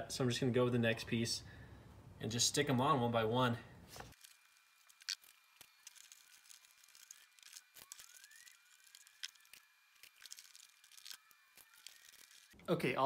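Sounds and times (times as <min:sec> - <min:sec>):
clicks and crackles of mat pieces: 0:03.9 - 0:12.6.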